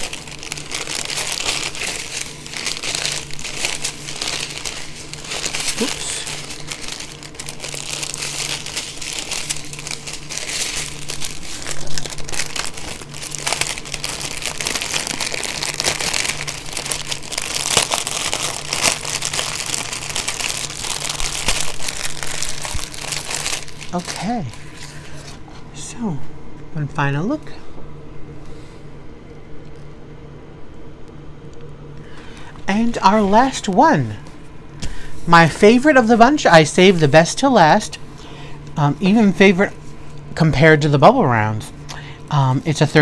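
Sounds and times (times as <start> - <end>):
plastic bags crinkling: 0.0 - 25.4.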